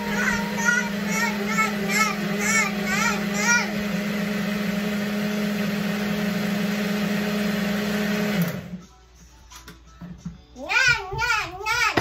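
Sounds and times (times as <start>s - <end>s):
blender motor running: 0.0s - 8.8s.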